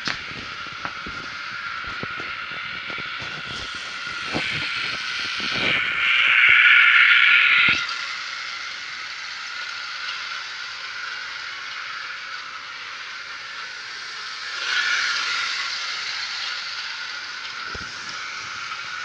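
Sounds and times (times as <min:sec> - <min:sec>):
model train motor whirring: 0:00.0 - 0:19.0.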